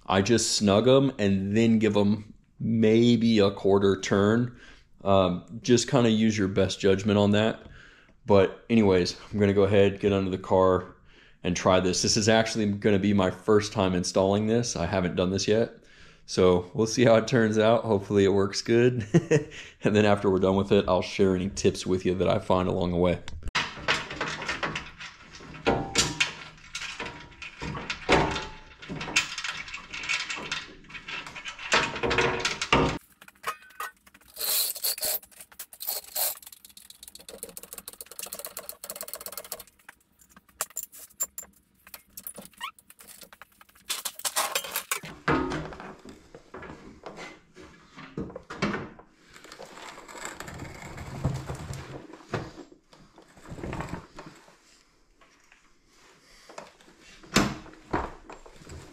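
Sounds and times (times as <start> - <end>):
metal parts clinking and jangling: 23.7 - 45.1.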